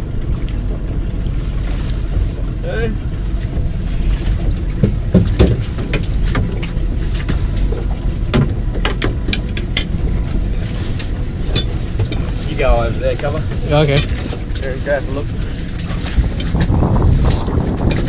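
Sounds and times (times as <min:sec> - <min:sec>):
wind and water around boat: 0:00.0 - 0:18.0
sharp clicks and knocks: 0:04.8 - 0:10.0.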